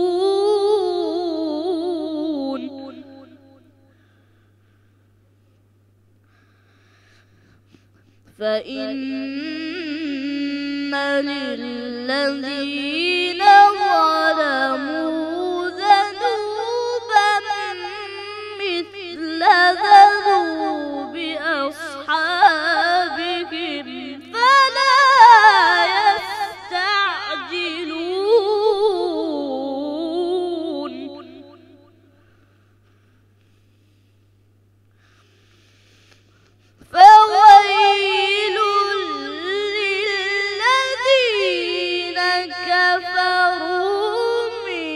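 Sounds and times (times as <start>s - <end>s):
boy chanting recitation: 0.0s - 3.4s, 8.3s - 31.9s, 36.8s - 44.9s.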